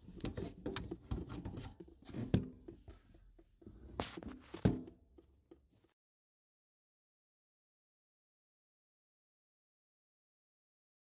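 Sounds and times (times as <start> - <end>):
metal hoses and fittings knocking: 0.0 - 3.8.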